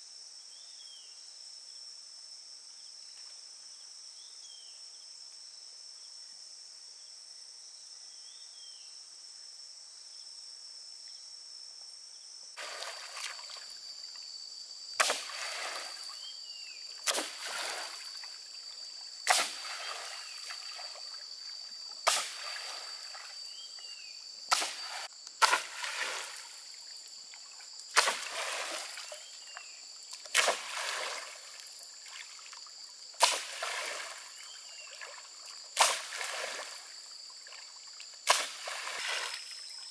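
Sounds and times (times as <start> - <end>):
insects whining: 12.1 - 39.9
pole slapping lake water: 12.6 - 13.7, 15.0 - 16.0, 17.0 - 18.4, 19.2 - 21.2, 22.1 - 23.3, 24.5 - 26.7, 27.9 - 29.4, 30.1 - 32.6, 33.2 - 37.6, 38.2 - 39.6.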